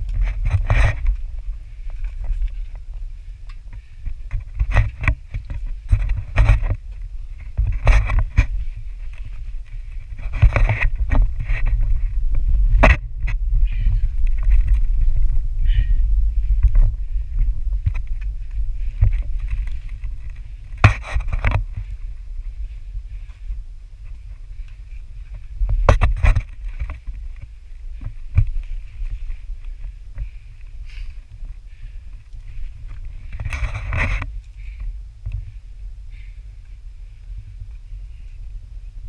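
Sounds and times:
knocks and scrapes on rock: 0.0 - 2.8, 4.2 - 15.1, 16.6 - 22.1, 25.3 - 29.5, 32.5 - 34.4
microphone handling noise: 0.0 - 36.3
wind rumble: 0.0 - 39.0.

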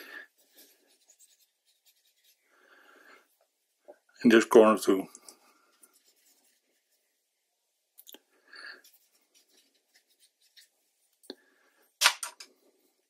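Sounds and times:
brush dabbing on paper: 0.3 - 2.6, 5.6 - 7.4, 8.8 - 11.2.

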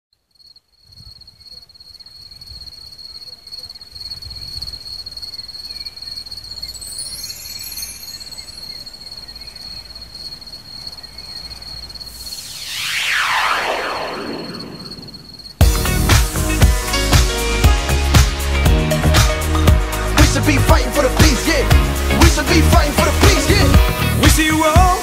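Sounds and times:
high-pitched insect trill: 0.3 - 15.9.

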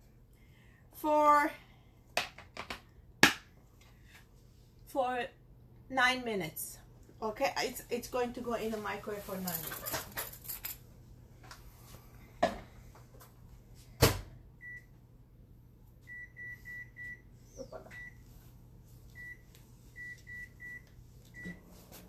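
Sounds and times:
microwave keypad beeps: 16.1 - 17.3, 20.0 - 21.6.

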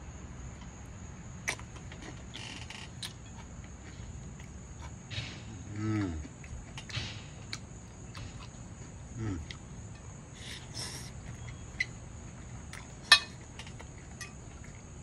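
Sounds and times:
person humming mm: 5.7 - 6.3, 9.2 - 9.6
fork clinking on ceramic bowl: 13.1 - 13.4.

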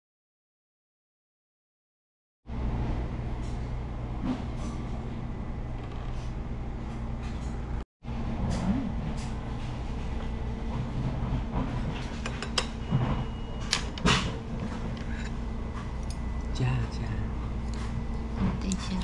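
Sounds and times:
low mechanical hum: 2.5 - 19.0.

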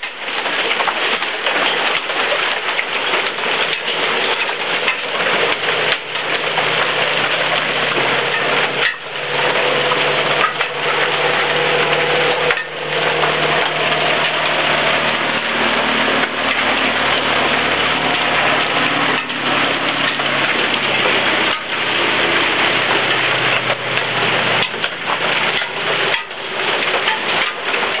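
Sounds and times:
heavy rain and hail: 0.0 - 28.0
low hum: 5.5 - 25.8.

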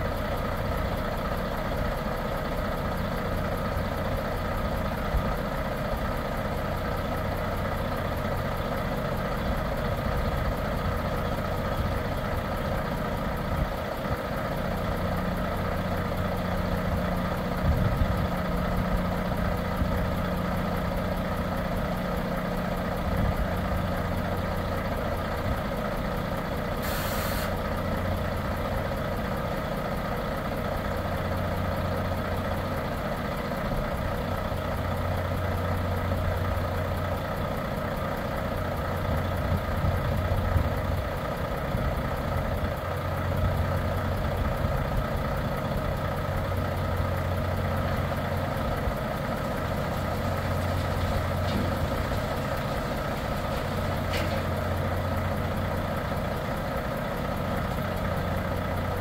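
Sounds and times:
diesel engine running: 0.0 - 59.0
air hiss: 26.8 - 27.6.

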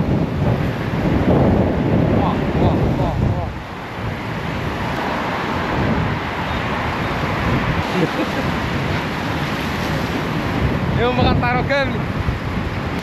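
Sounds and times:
road traffic passing: 0.0 - 13.0
storm wind buffeting microphone: 0.0 - 13.0.

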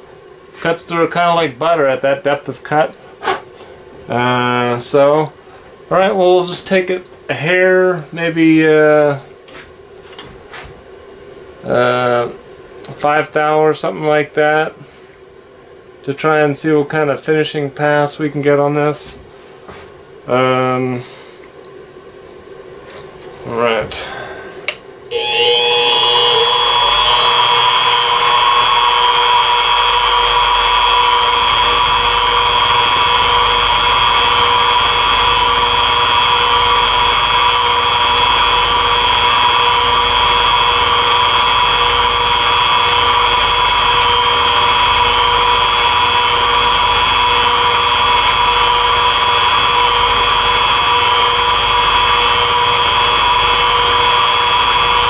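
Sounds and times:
mini mill whine: 23.0 - 55.0
end mill cutting plastic: 25.1 - 55.0.

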